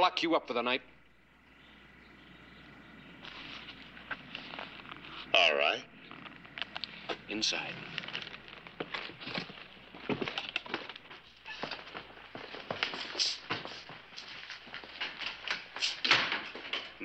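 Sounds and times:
footsteps on wooden floorboards: 0:07.1 - 0:15.8.

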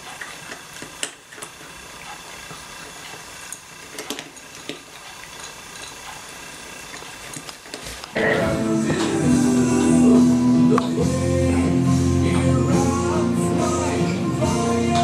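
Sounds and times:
cats eating from metal bowls: 0:00.0 - 0:08.2.

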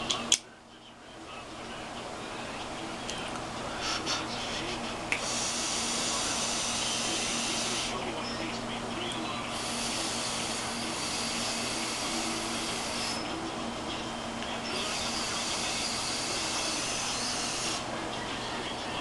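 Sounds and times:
vape hissing draws: 0:03.8 - 0:07.9, 0:09.5 - 0:13.2.

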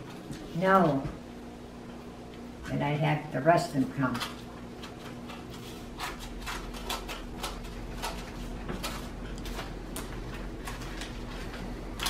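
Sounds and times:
faint steady hum: 0:00.0 - 0:12.0
scissors snipping paper: 0:06.0 - 0:10.1.

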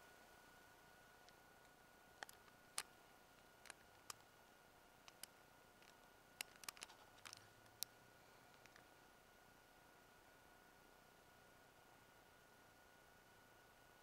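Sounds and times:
small sharp clicks: 0:01.2 - 0:04.3, 0:05.0 - 0:08.9.

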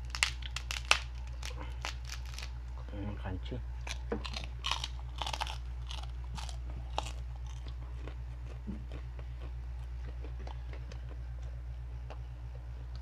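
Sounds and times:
crunching and chewing: 0:00.0 - 0:02.9, 0:03.7 - 0:13.0
steady low hum: 0:00.0 - 0:13.0.

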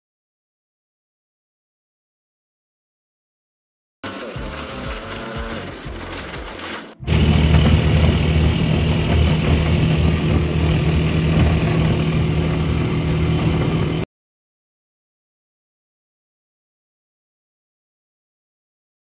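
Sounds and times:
motorcycle engine running: 0:04.0 - 0:14.0.

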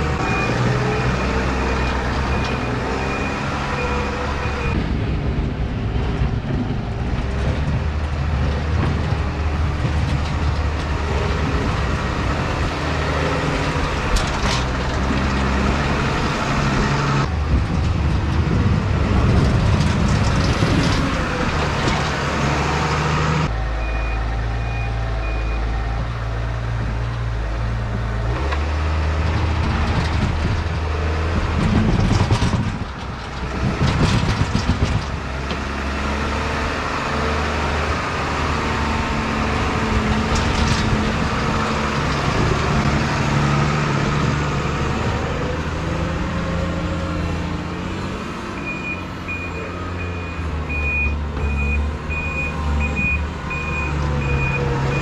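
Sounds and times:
loader bucket scraping and knocking: 0:00.0 - 0:55.0
tractor diesel engine running: 0:00.0 - 0:55.0
reverse alarm beeping: 0:23.8 - 0:25.7, 0:48.6 - 0:55.0.

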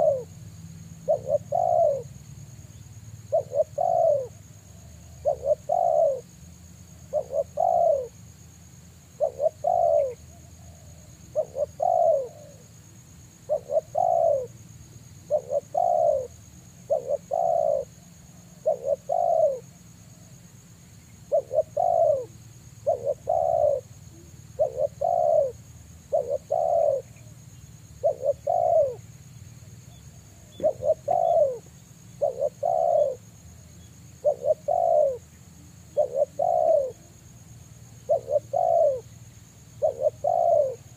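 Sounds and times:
dove cooing: 0:00.0 - 0:00.3, 0:01.0 - 0:02.2, 0:03.2 - 0:06.4, 0:07.1 - 0:08.2, 0:09.1 - 0:12.7, 0:13.4 - 0:14.6, 0:15.2 - 0:19.8, 0:21.2 - 0:29.1, 0:29.7 - 0:37.2, 0:38.0 - 0:39.1, 0:39.7 - 0:40.9.

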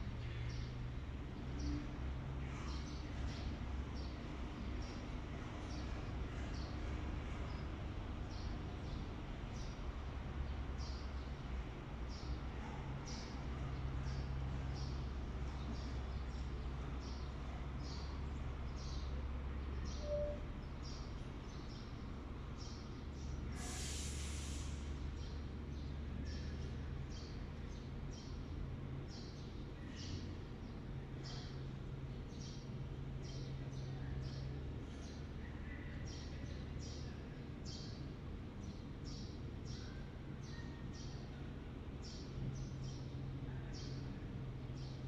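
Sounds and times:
low machinery hum: 0:00.0 - 0:45.0
loud hiss of air: 0:23.5 - 0:25.1.

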